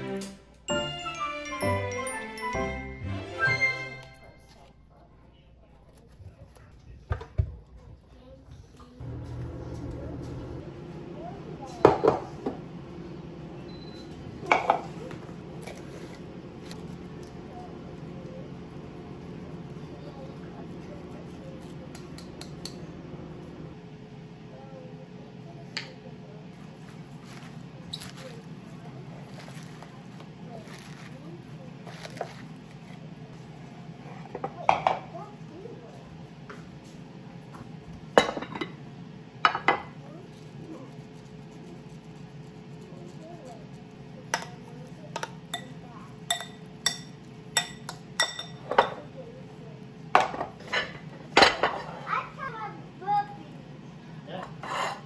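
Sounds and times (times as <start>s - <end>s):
steady low hum: 7.9s - 34.4s
metal spoon clinking on glass bowl: 45.2s - 48.7s.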